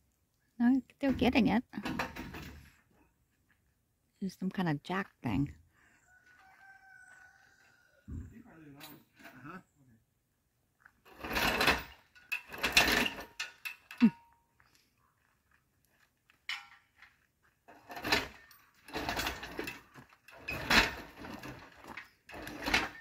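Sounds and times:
engine hoist ratcheting: 11.1s - 14.1s, 17.8s - 23.0s.

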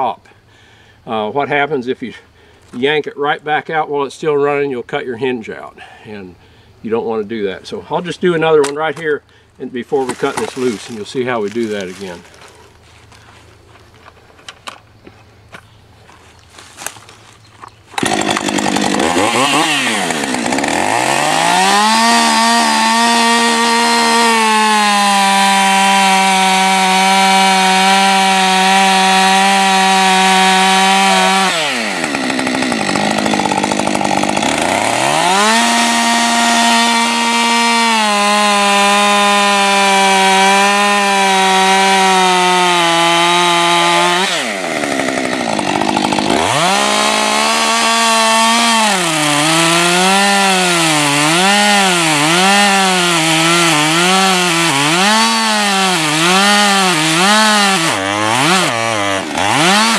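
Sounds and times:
chainsaw cutting and idling: 9.9s - 13.6s, 16.5s - 59.9s.

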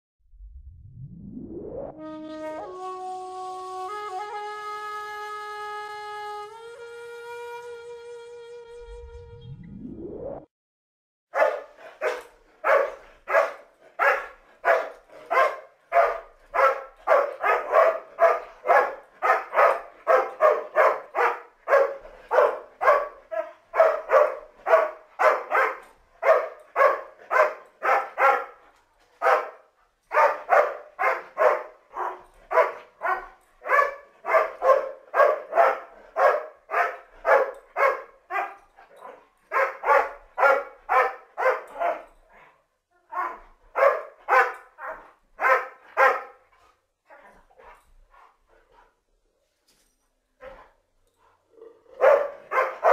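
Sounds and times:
dog barking: 11.3s - 28.6s, 29.2s - 42.1s, 43.0s - 46.5s, 51.7s - 52.9s.

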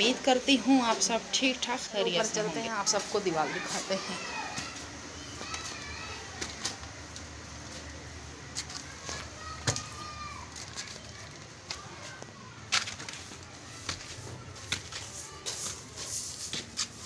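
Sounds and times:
footsteps climbing stairs: 11.6s - 16.9s.

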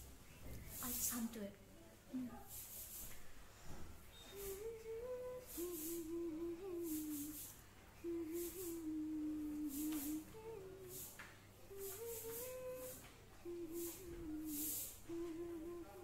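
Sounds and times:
soft hissy brushes: 0.0s - 16.0s
woman humming: 4.2s - 16.0s.

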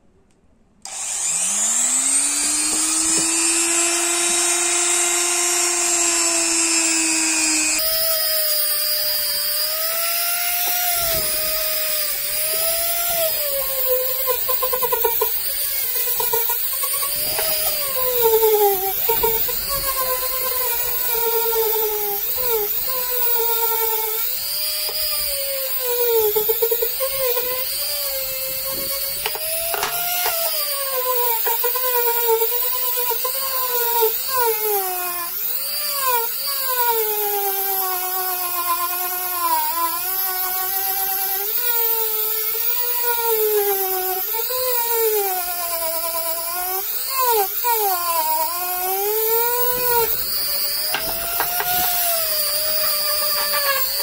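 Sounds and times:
rotary tool motor whine: 0.8s - 54.0s
wire brush scratching wood: 46.7s - 54.0s.

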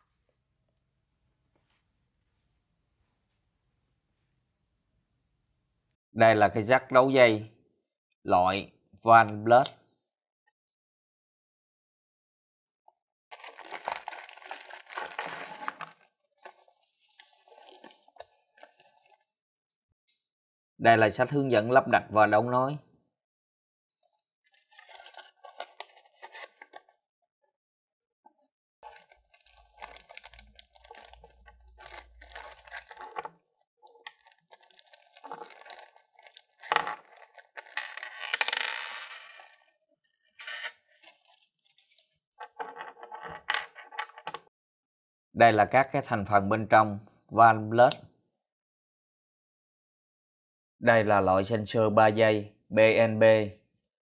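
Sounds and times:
plastic bag crinkling: 13.3s - 19.2s, 24.6s - 26.6s, 28.8s - 33.3s, 34.0s - 37.8s
paper rustling: 13.3s - 19.3s, 24.6s - 26.8s, 28.8s - 33.3s, 34.1s - 37.8s.

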